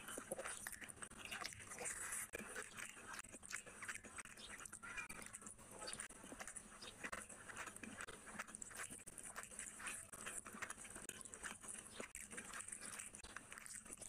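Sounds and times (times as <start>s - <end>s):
person chewing food: 0.0s - 14.0s
wet mouth clicks and smacks: 0.0s - 14.0s.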